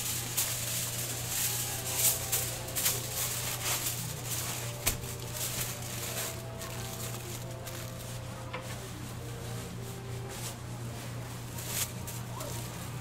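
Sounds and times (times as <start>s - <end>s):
rustling and clattering: 0.0s - 13.0s
steady low hum: 0.0s - 13.0s.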